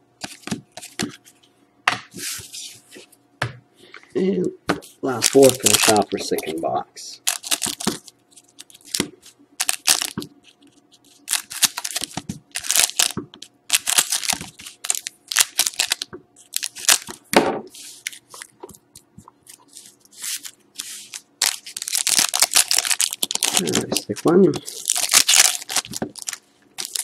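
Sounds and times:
wrappers crinkling and rustling: 5.0s - 6.6s, 7.2s - 9.0s, 9.6s - 17.1s, 19.5s - 27.0s.

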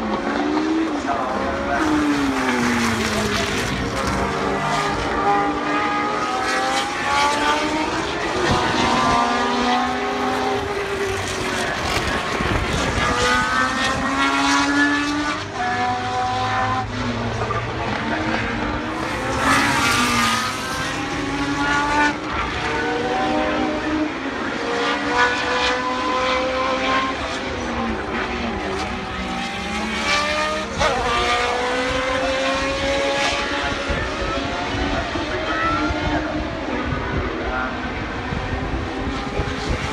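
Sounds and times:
racing car engines accelerating: 0.0s - 39.9s
racing car passing by: 0.1s - 37.0s.

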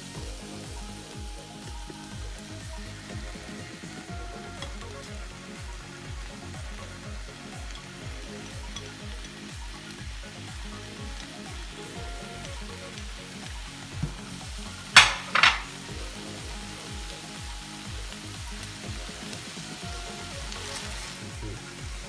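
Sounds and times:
vegetables sizzling in a pan: 0.0s - 22.0s
kitchenware clattering against pan: 15.0s - 15.8s.

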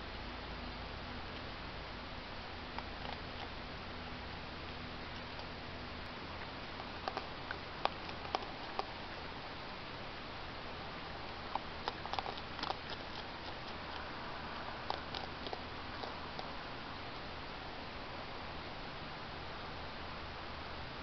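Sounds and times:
microphone hiss: 0.0s - 21.0s
raccoons chewing food: 2.4s - 18.9s.

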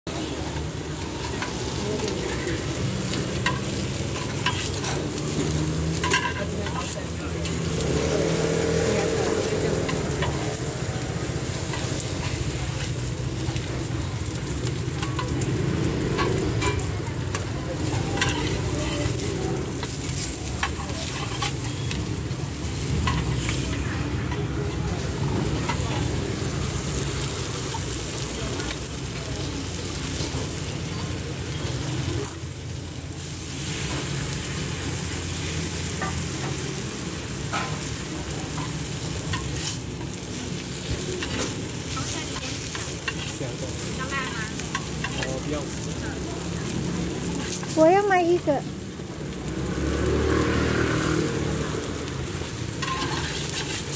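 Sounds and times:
omelettes sizzling on griddle: 0.0s - 53.9s
metal spatula clicks and scrapes: 0.6s - 29.2s, 37.4s - 47.8s, 51.6s - 53.9s.

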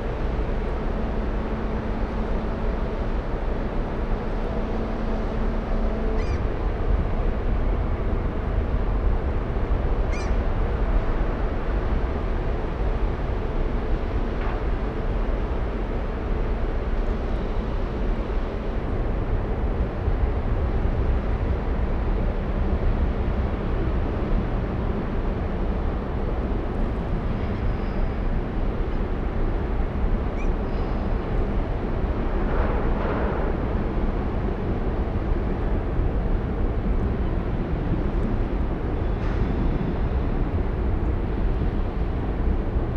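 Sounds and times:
faint bird chirps: 10.1s - 10.4s.

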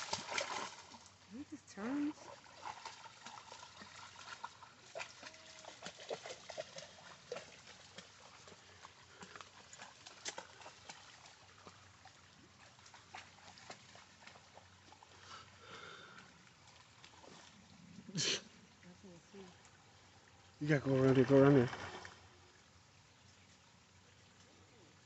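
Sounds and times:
dog splashing in water: 0.0s - 15.0s, 21.2s - 22.2s
faint water trickle: 0.0s - 25.0s.

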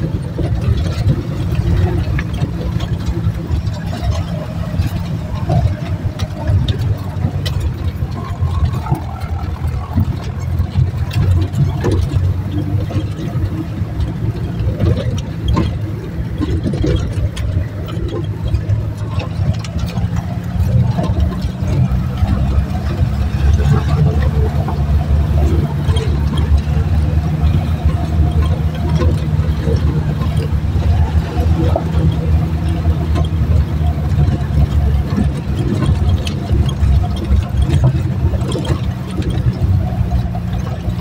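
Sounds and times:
car engine low rumble: 0.0s - 41.0s
knocks and rattles over rough track: 0.0s - 41.0s.

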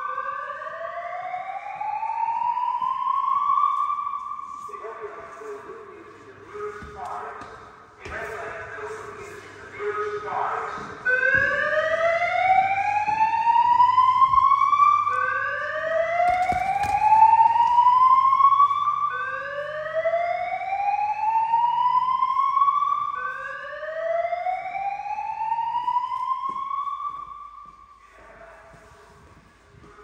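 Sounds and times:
fire alarm rising whoop tone: 0.0s - 4.8s, 11.0s - 28.0s.

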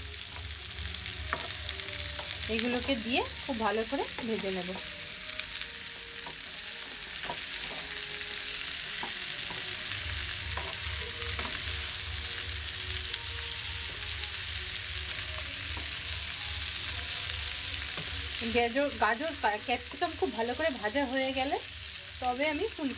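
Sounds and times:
vegetables sizzling in hot oil: 0.0s - 22.9s
spatula scraping a pan: 6.2s - 8.1s, 9.0s - 12.0s.

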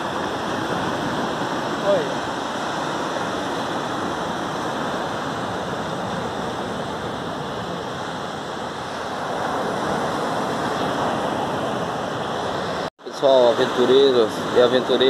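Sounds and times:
ocean waves breaking on beach: 0.0s - 15.0s.

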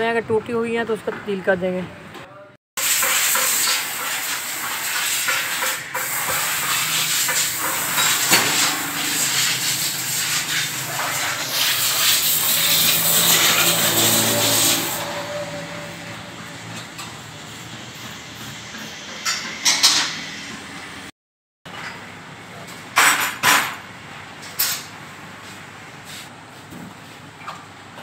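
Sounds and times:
compressed air blow gun hissing: 2.8s - 15.0s.

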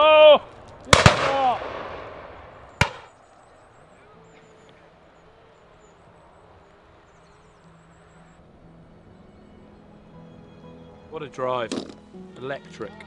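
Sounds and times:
distant bird calls: 0.0s - 13.0s
shotgun shot echo: 0.9s - 3.1s.

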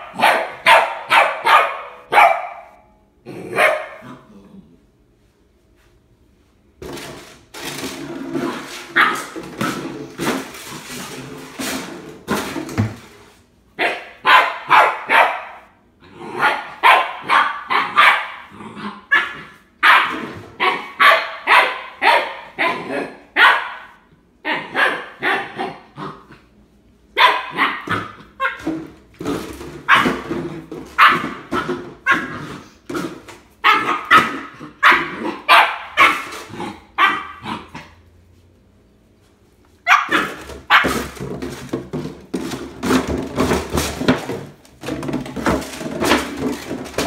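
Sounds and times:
puppy barking: 0.0s - 2.9s, 3.5s - 4.3s, 9.0s - 9.4s, 13.8s - 26.0s, 27.1s - 28.7s, 29.9s - 30.2s, 31.0s - 32.4s, 33.6s - 38.0s, 39.8s - 41.2s
puppy growling: 3.2s - 4.9s, 16.0s - 16.8s, 17.8s - 19.6s, 24.5s - 26.6s, 32.1s - 35.5s, 36.2s - 38.0s.

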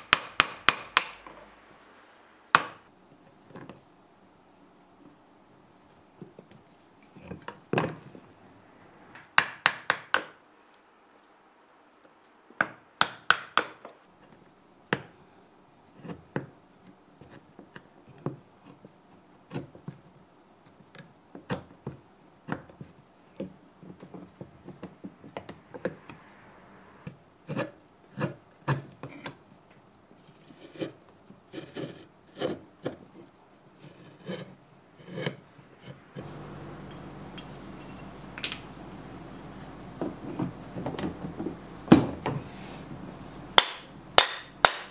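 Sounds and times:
chisel paring wood: 0.0s - 1.5s, 9.2s - 10.4s, 12.6s - 13.9s, 43.6s - 44.9s.

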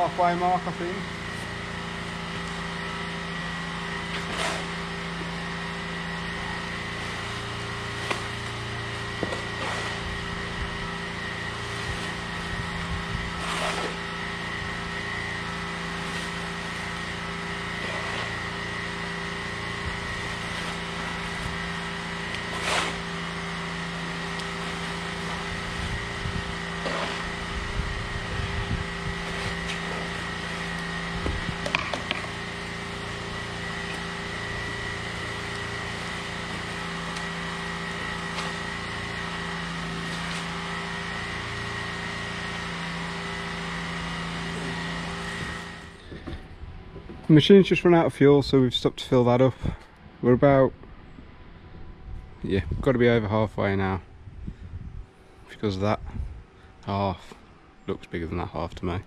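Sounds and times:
pressure washer engine running: 0.0s - 46.5s
shovel scraping paving: 3.8s - 46.4s.

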